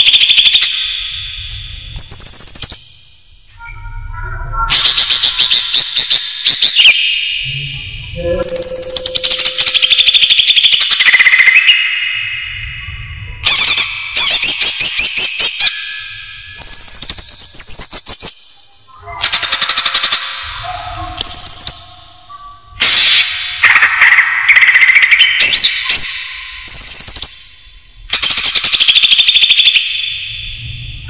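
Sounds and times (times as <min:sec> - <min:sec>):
bird song chattering trills: 0:08.2 - 0:12.3.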